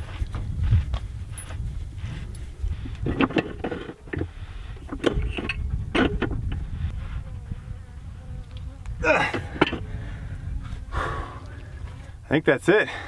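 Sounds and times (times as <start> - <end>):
pipe wrench scraping and clicking: 2.8 - 6.6
fly buzzing: 6.4 - 12.2.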